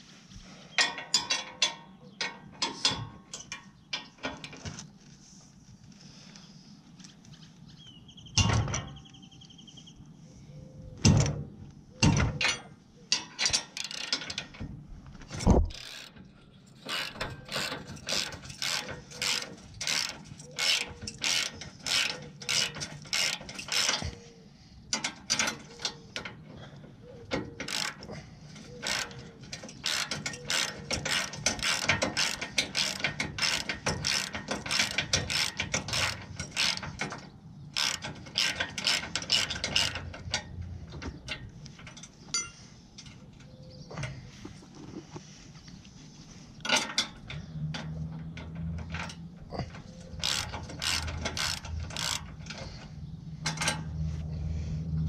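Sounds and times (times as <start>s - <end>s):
socket ratchet clicking: 16.8s - 24.2s, 28.7s - 40.6s, 50.0s - 52.8s.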